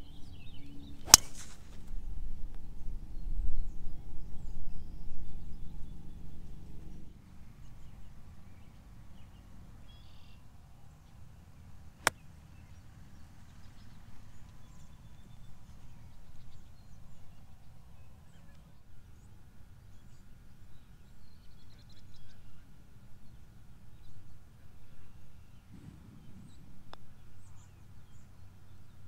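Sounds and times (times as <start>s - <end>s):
golf club striking ball: 1.0s - 1.9s
wind rumble on microphone: 1.7s - 7.2s, 25.7s - 28.4s.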